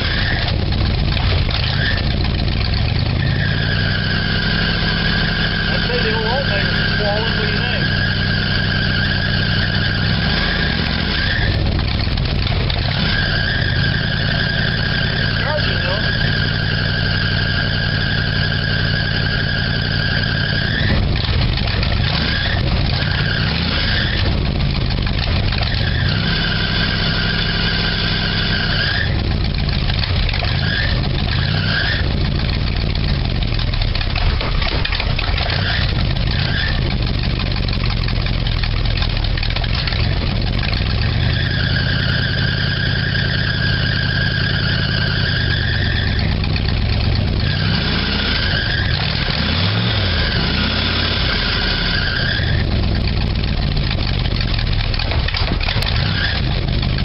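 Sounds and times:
engine revving: 0.0 - 57.0
belt squealing and chirping: 12.9 - 21.0, 41.1 - 46.4, 51.2 - 52.7.

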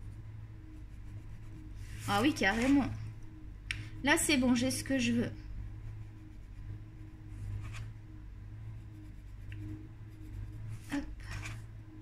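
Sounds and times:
pencil scratching on paper: 0.0 - 3.0, 5.8 - 7.9, 8.8 - 11.6
low hum: 0.0 - 12.0.

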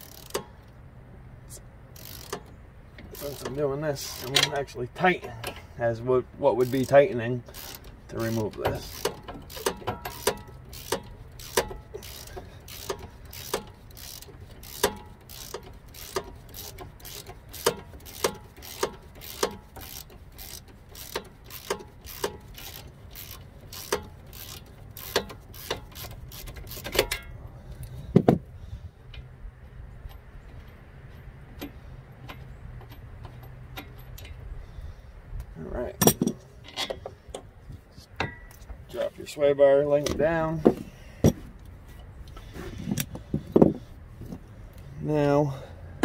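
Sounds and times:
hand ratchet clicking: 0.0 - 0.7, 1.9 - 5.7, 6.6 - 28.0.

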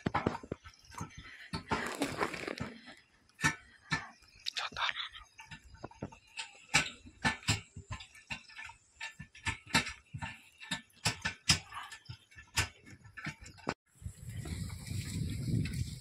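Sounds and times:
wooden cart clattering: 1.7 - 2.8.

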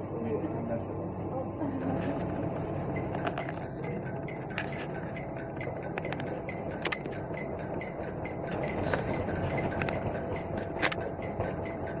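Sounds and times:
sharp taps and clicks: 3.1 - 12.0.

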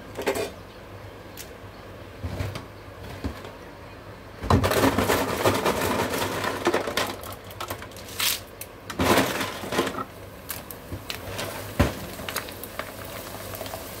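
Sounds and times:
chips clattering into oil: 4.5 - 14.0
chips sizzling in hot oil: 10.3 - 14.0.

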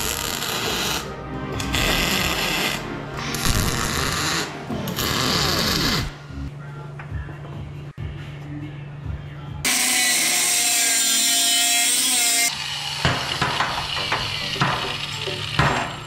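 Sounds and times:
background music: 0.0 - 16.0
angle grinder cutting aluminum: 9.7 - 16.0.

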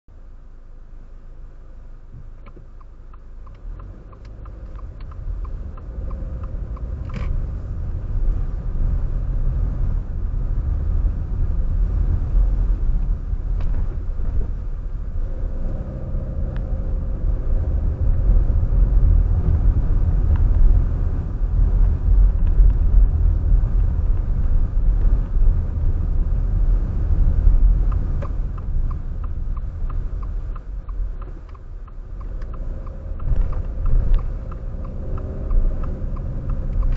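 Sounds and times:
car engine and road rumble: 0.0 - 36.9
faint regular ticking: 2.2 - 7.9, 26.7 - 36.9.

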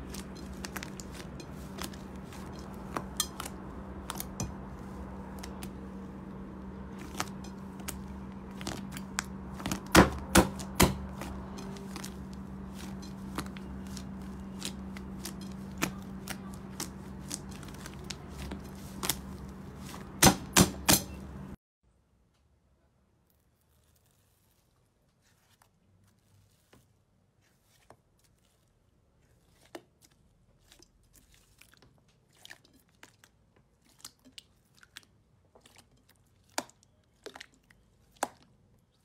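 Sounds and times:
low hum: 0.0 - 21.6.

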